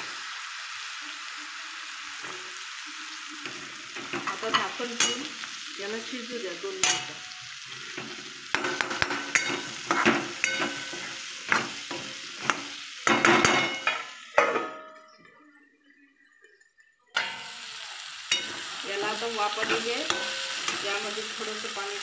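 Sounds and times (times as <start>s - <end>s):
food sizzling in oil: 0.0s - 22.0s.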